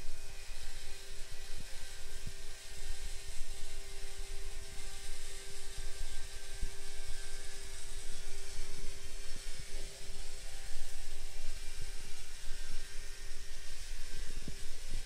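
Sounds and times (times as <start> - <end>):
small electric motor whining: 0.0 - 15.0.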